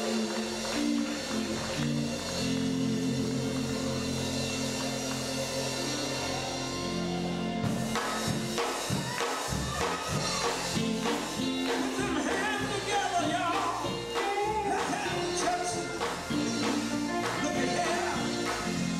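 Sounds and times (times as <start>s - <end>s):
men singing: 0.0s - 4.1s, 11.8s - 18.9s
electric band playing gospel: 0.0s - 18.9s.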